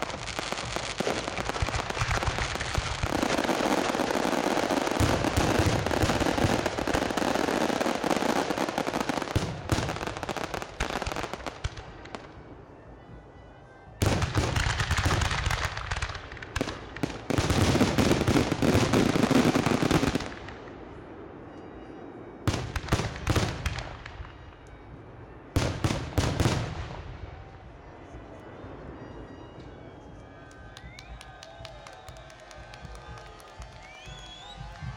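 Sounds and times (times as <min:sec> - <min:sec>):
fireworks bursting in rapid bangs: 0:00.0 - 0:12.3, 0:14.0 - 0:20.7, 0:30.5 - 0:34.9.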